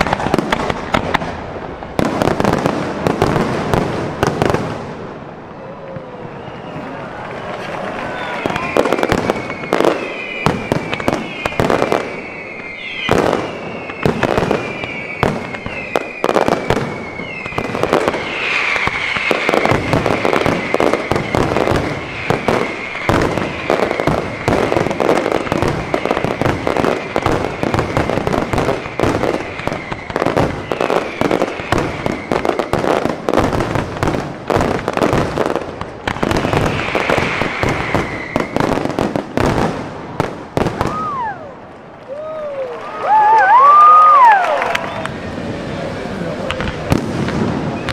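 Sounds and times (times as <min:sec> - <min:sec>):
fireworks crackle: 0:00.0 - 0:47.9
firework whistles falling in pitch: 0:06.0 - 0:33.1, 0:36.2 - 0:38.9, 0:40.8 - 0:41.6, 0:43.0 - 0:45.2, 0:47.6 - 0:47.9.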